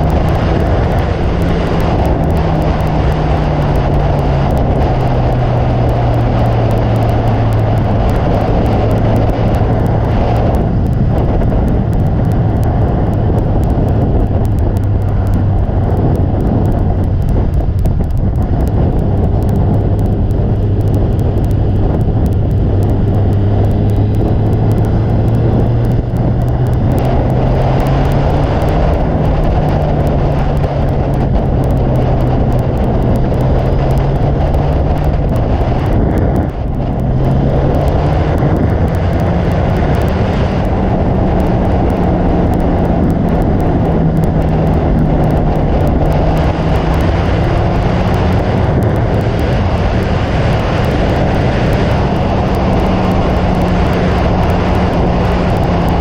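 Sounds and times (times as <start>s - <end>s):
heavy wind: 0.0s - 56.0s
motorcycle engine cruising: 0.0s - 56.0s
wind and road noise while riding: 0.0s - 56.0s.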